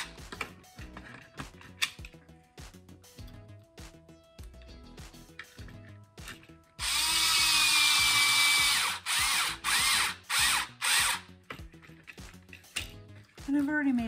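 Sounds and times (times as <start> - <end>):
cordless drill motor whine: 6.8 - 11.2.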